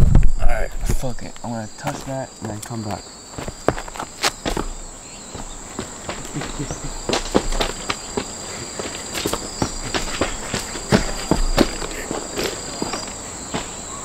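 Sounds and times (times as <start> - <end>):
insect drone: 0.0 - 14.0
footsteps on gravel: 0.8 - 14.0
person landing thud: 3.4 - 13.9.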